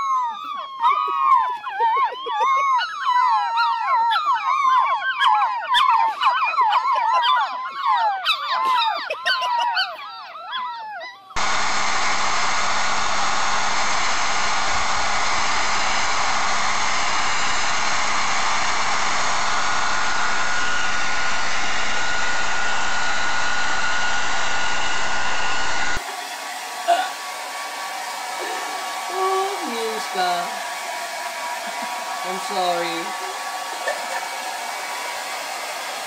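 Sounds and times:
puppies howling and yipping: 0.0 - 11.4, 26.0 - 35.8.

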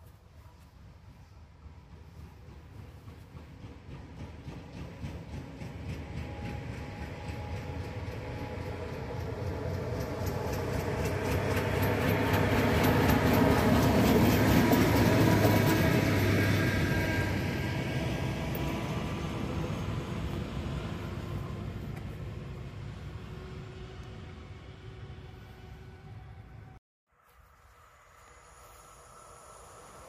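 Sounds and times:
diesel locomotive engine drone: 0.0 - 26.8, 27.4 - 30.0
wheels clicking over rails: 1.7 - 17.1.

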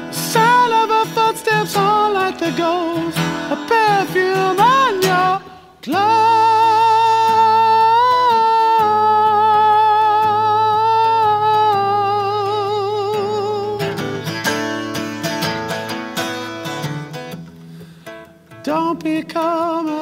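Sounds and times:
man singing high held note: 0.0 - 13.9
acoustic guitar strumming: 0.0 - 20.0.

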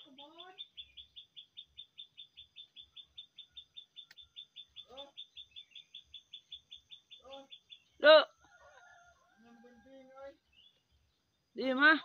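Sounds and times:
high-pitched chirping: 0.0 - 8.2.

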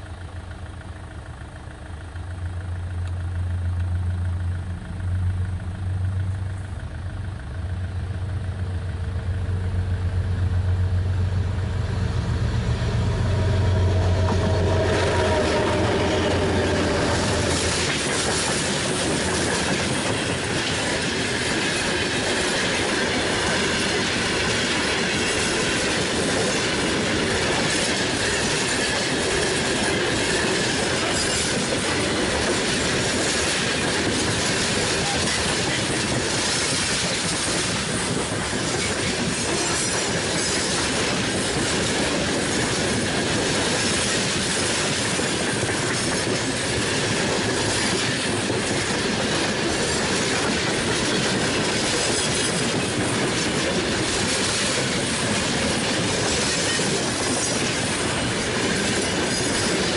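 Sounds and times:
diesel locomotive engine hum: 0.0 - 59.9
wheels rattling on rail: 0.0 - 59.9
high wheel squeal: 11.4 - 19.4, 25.1 - 41.4.

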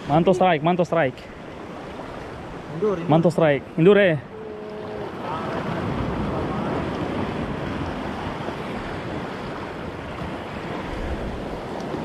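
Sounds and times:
sea rushing: 0.0 - 12.0
wind buffeting microphone: 4.2 - 12.0.

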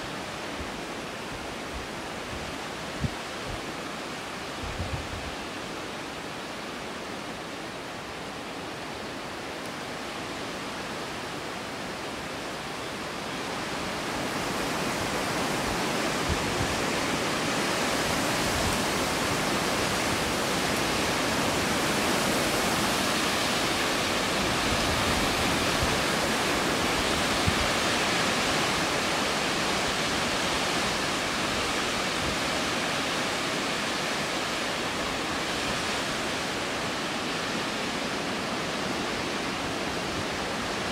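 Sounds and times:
wind buffeting microphone: 4.6 - 5.4, 13.8 - 32.7.

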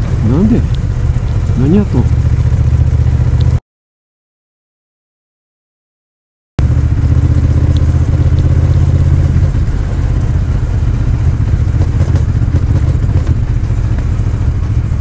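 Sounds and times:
motorcycle engine humming: 0.0 - 3.6, 6.6 - 15.0.

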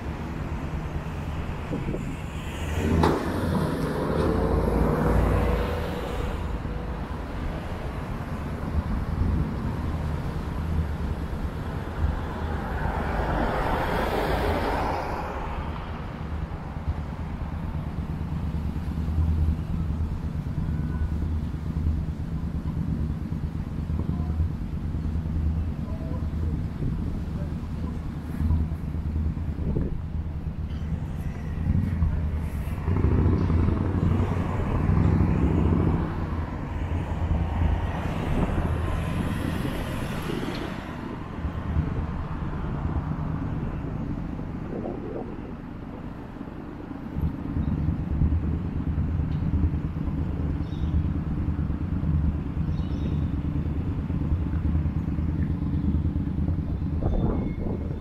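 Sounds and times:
passing vehicle hiss: 0.0 - 8.7, 30.6 - 42.6
low traffic rumble: 0.0 - 58.0.

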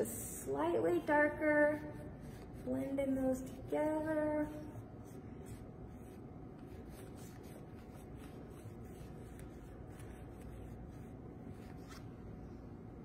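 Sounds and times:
low room hum: 0.0 - 13.0
paintbrush stroking on canvas: 1.8 - 3.8, 4.4 - 12.1.

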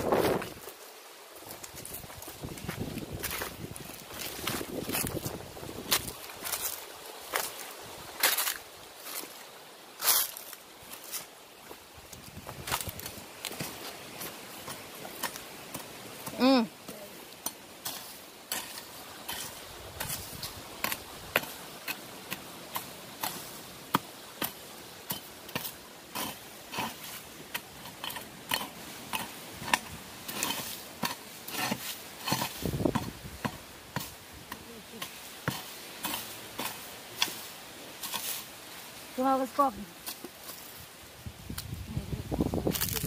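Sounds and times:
hoe chopping into dry soil: 17.4 - 38.5.

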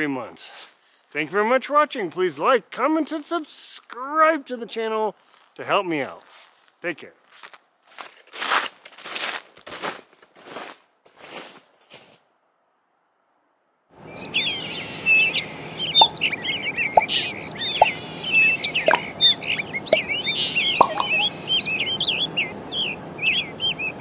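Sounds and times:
birds chirping and whistling: 14.0 - 24.0.

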